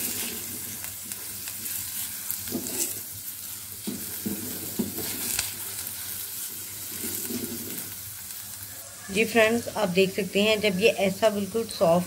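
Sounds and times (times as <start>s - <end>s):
spatula scraping a pan: 0.0s - 9.4s
onion sizzling in a pan: 0.0s - 12.0s.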